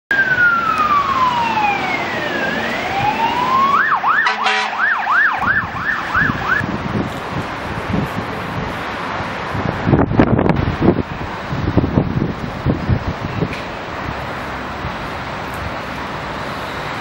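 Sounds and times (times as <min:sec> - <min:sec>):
fire engine siren: 0:00.1 - 0:06.7
engine and tyres on wet road: 0:00.1 - 0:17.0
horn blast: 0:04.0 - 0:06.6.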